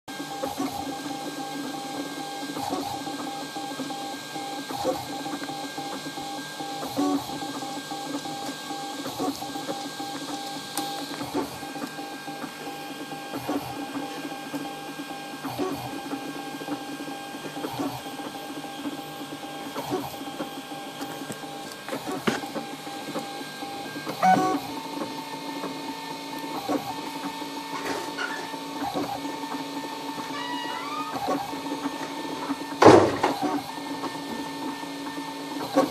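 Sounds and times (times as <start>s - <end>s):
stepper motors whining: 0.3s - 35.9s
printer knock: 32.0s - 33.5s.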